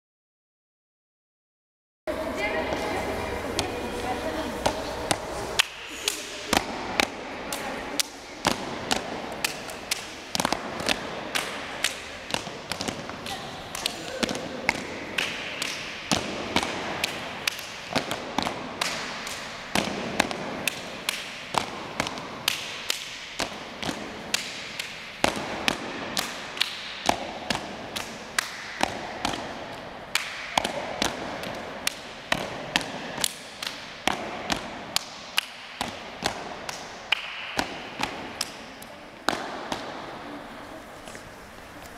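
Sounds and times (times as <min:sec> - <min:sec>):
children clapping in rhythm: 0:05.1 - 0:32.1, 0:32.8 - 0:35.7, 0:36.3 - 0:39.4.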